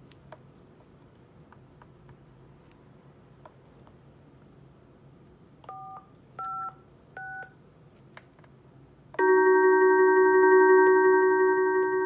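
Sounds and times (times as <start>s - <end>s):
loud steady phone tone: 9.2s - 12.0s.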